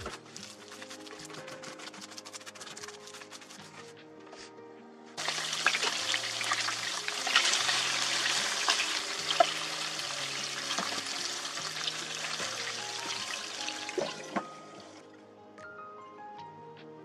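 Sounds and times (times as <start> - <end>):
spattering fat crackles: 0.0 - 3.8
patties sizzling in frying pan: 5.2 - 13.9.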